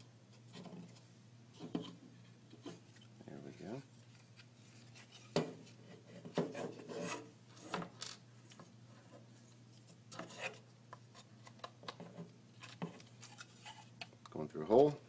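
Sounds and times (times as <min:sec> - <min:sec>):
wood scraping against wood: 0:02.6 - 0:07.8.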